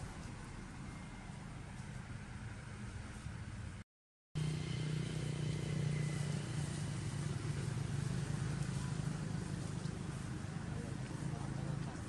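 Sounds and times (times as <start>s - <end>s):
engine droning: 4.4s - 12.0s.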